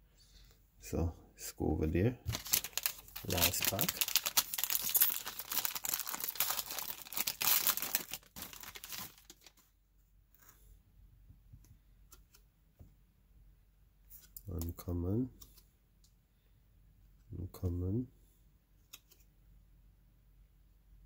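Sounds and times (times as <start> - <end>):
foil wrapper tearing and crinkling: 2.3 - 9.6.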